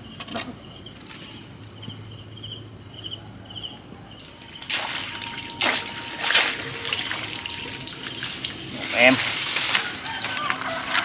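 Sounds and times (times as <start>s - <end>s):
insects chirping: 0.0s - 11.0s
swishing through leafy undergrowth: 4.3s - 11.0s.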